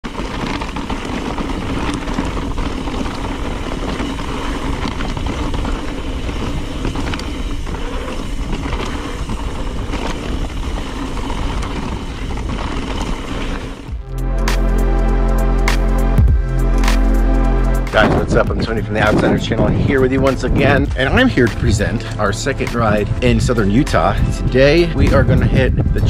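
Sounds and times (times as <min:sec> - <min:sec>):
bike knocks and rattles: 0:00.0 - 0:14.0
tyres on loose dirt and rock: 0:00.0 - 0:14.0, 0:17.9 - 0:26.0
wind buffeting camera: 0:00.0 - 0:14.0, 0:17.8 - 0:26.0.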